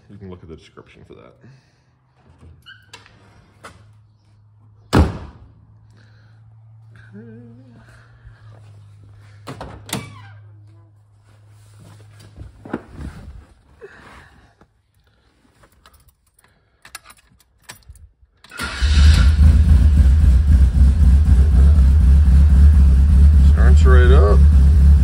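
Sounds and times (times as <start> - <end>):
car engine starting and running: 18.5 - 25.0.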